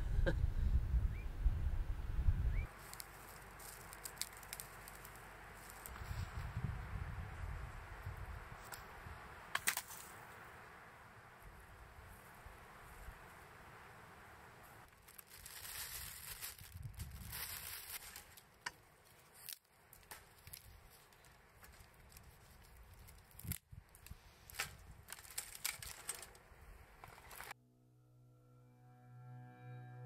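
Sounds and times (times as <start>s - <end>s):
rustling and crinkling handling: 2.7s - 6.3s, 14.9s - 27.6s.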